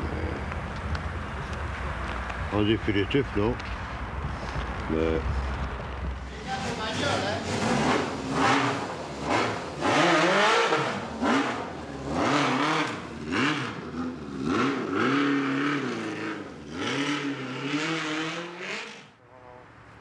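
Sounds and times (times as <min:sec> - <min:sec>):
motorcycle engine revving: 0:06.2 - 0:19.2.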